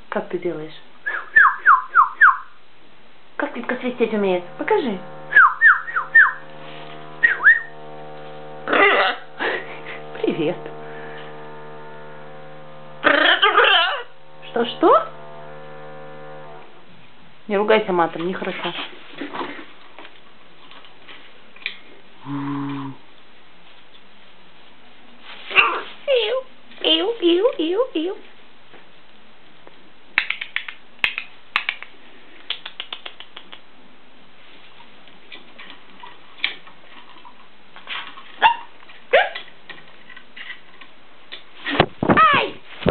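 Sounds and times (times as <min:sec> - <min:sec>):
macaw call: 0:05.3 - 0:06.4.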